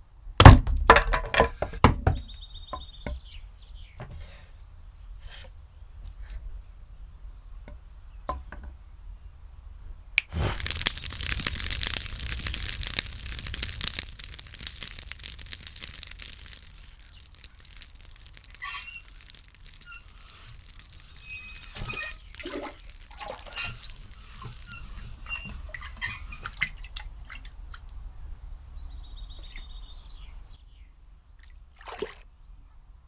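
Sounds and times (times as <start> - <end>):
campfire crackling and popping: 10.2 - 27.5.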